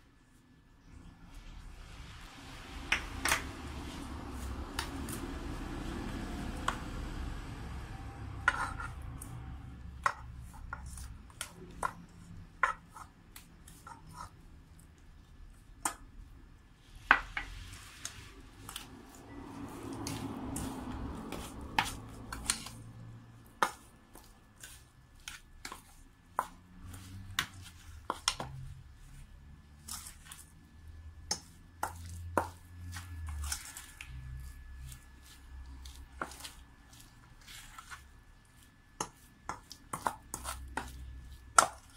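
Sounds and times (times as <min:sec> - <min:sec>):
metal spoon scraping steel bowl: 0:08.2 - 0:09.4.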